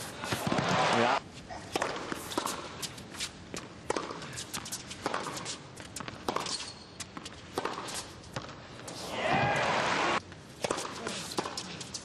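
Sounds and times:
racquets striking tennis ball: 0.3 - 1.0, 1.7 - 2.9, 3.5 - 10.0, 10.6 - 11.8
footsteps and shoe squeaks: 1.4 - 3.7, 4.4 - 9.0.

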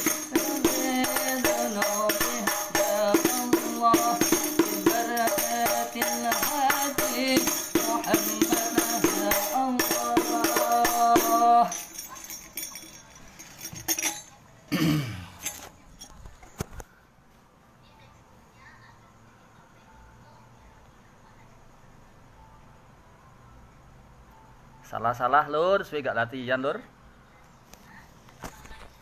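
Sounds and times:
man singing: 0.0 - 11.9.

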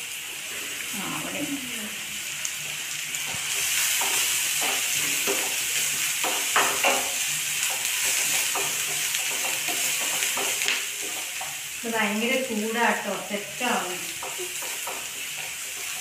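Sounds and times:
onion sizzling in a pan: 0.0 - 16.0
spatula scraping a pan: 3.1 - 11.8, 13.7 - 16.0.

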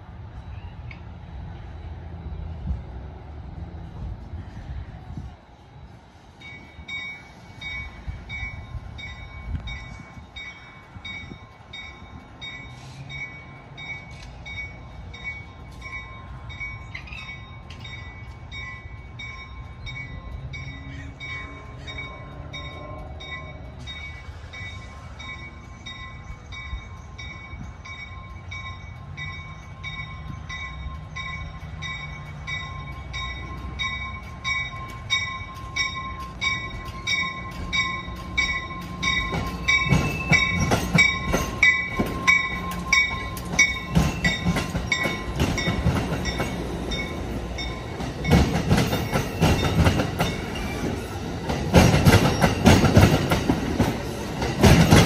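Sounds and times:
diesel train rumble: 0.0 - 55.0
train bell ringing: 5.6 - 55.0.

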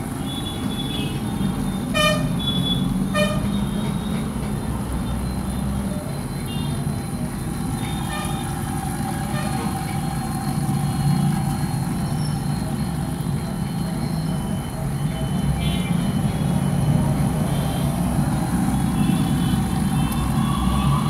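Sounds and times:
road traffic: 0.0 - 21.0
vehicle horn toots: 1.9 - 3.6, 8.0 - 8.5, 9.3 - 9.7.

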